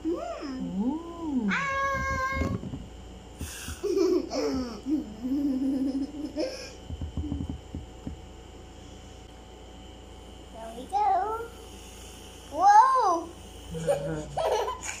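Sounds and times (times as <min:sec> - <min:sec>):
young child laughing: 0:03.7 - 0:06.8, 0:13.8 - 0:15.0.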